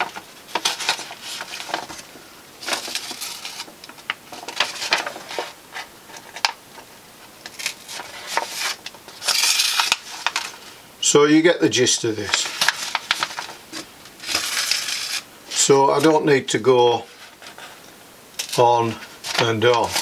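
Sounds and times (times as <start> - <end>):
paper rustling and crinkling: 0.0 - 10.8, 12.2 - 16.2, 16.9 - 17.8, 18.4 - 20.0
needle and thread through paper: 7.6 - 10.6, 12.3 - 15.2.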